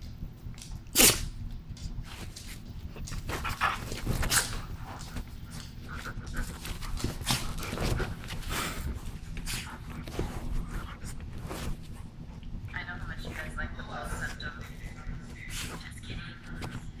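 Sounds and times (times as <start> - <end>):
dogs growling and grunting: 2.7 - 12.6.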